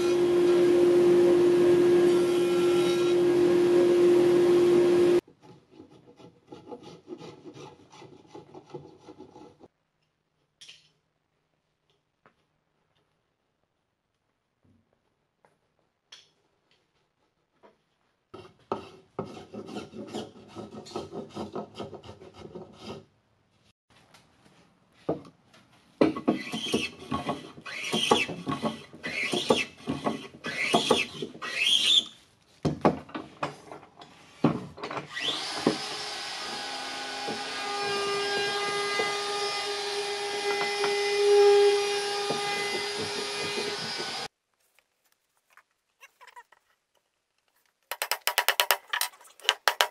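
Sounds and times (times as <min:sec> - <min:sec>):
chisel scraping wood: 0:05.3 - 0:09.7, 0:18.3 - 0:23.1
hand plane strokes: 0:05.3 - 0:09.7, 0:18.4 - 0:23.1.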